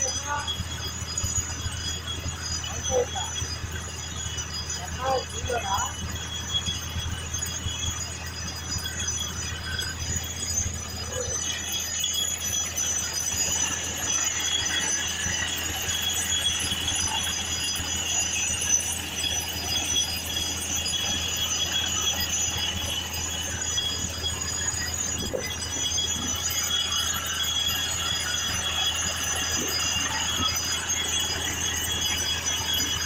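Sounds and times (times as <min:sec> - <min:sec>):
drilling rig low drone: 0:00.0 - 0:33.0
high-pitched metallic whine: 0:00.0 - 0:33.0.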